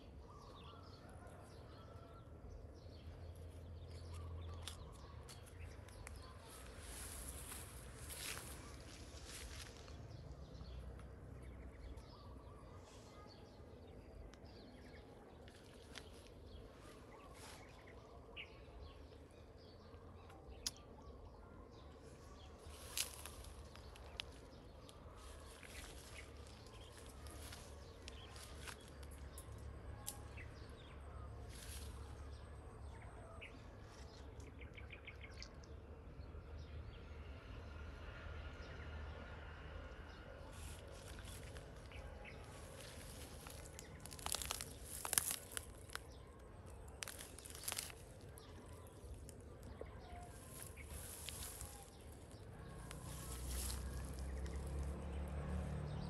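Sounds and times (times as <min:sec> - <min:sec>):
small birds chirping: 0:02.8 - 0:37.1, 0:40.1 - 0:55.2
birds chirping: 0:40.1 - 0:56.0.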